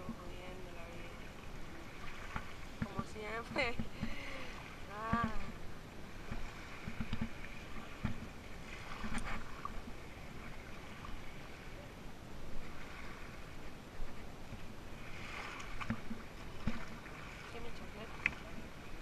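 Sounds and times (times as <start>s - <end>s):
water and wind noise: 0.0s - 19.0s.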